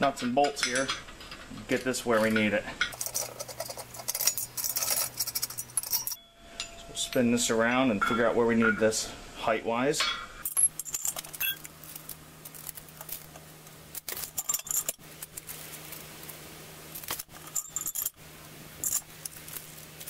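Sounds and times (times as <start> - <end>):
metal brackets clinking: 0.4 - 8.3, 10.1 - 13.3, 14.0 - 15.5, 17.0 - 18.2, 18.8 - 19.8.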